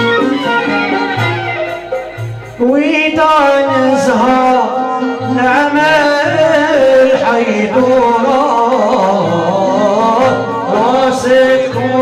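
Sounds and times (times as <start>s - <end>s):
frame drums beating: 0.0s - 12.0s
oud and violin melody: 0.0s - 12.0s
man singing: 2.6s - 12.0s.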